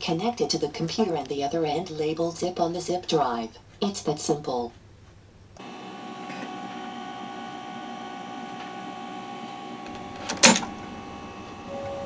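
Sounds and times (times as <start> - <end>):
computer hum with whining tones: 5.3 - 12.0.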